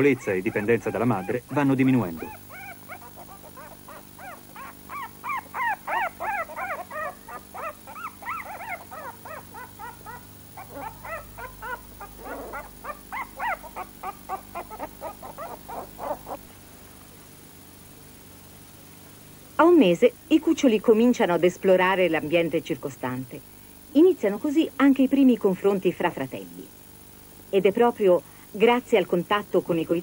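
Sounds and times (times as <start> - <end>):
puppies whimpering and squealing: 0.0 - 1.5, 2.1 - 16.5.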